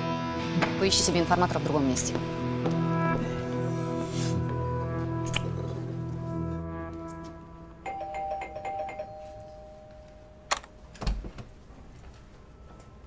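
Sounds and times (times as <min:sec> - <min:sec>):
doorbell two-tone chime: 0:07.8 - 0:10.9
door lock clicks: 0:10.5 - 0:11.2.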